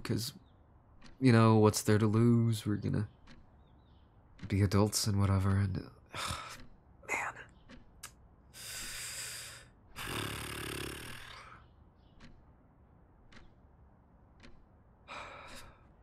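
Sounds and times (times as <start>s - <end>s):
mouth clicks: 6.2s - 12.4s
man breathing: 8.5s - 11.7s, 15.0s - 16.0s.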